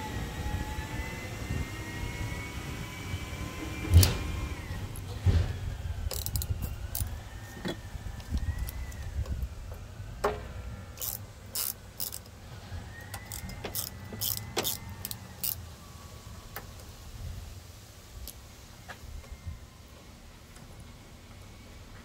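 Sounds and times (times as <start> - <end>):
ratchet wrench clicking: 6.1 - 7.2, 11.0 - 12.3, 13.0 - 15.6.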